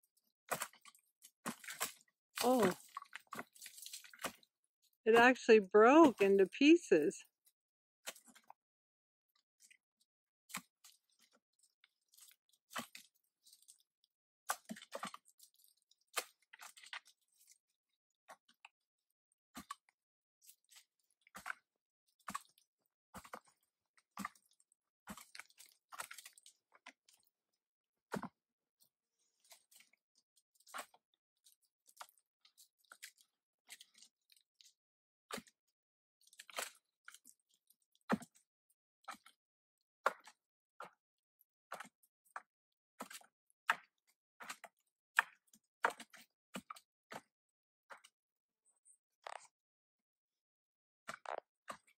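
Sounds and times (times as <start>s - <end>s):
wooden stick scraping rock and bark: 0.5s - 4.5s.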